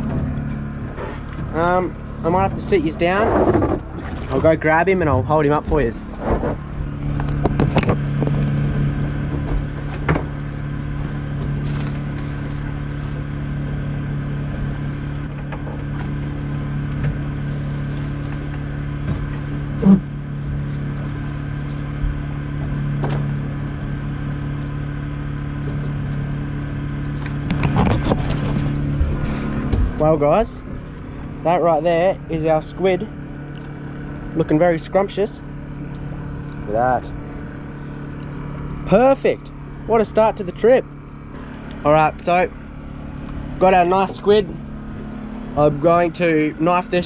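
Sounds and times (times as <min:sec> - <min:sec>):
generator droning: 0:00.0 - 0:47.0.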